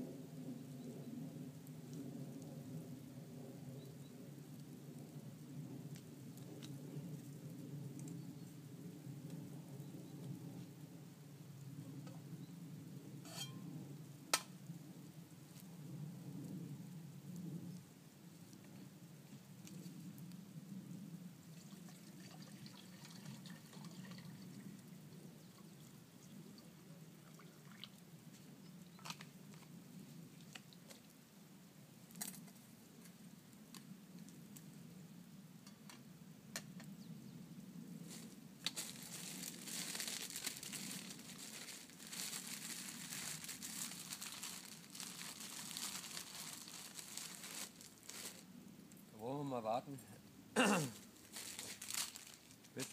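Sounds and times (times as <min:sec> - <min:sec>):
plastic packet crinkling: 0:38.1 - 0:48.4, 0:51.3 - 0:52.9.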